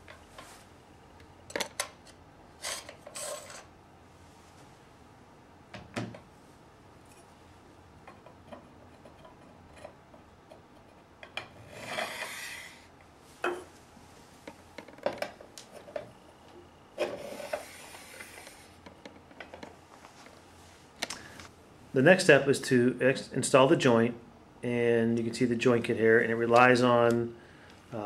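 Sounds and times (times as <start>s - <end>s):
metal parts scraping: 2.6s - 3.7s.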